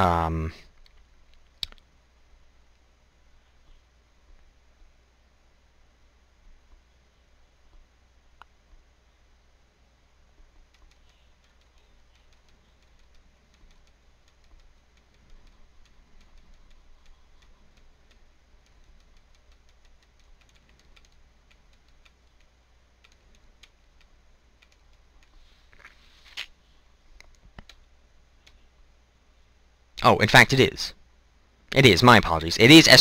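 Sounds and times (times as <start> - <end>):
steady low hum: 0.0 - 33.0
mouse clicks: 0.8 - 1.9, 10.6 - 26.5
keyboard typing: 10.6 - 25.9.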